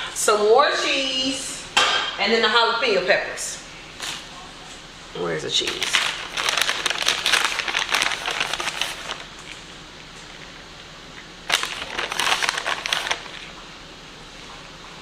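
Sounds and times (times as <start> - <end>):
plastic bag crinkling: 5.5 - 13.6.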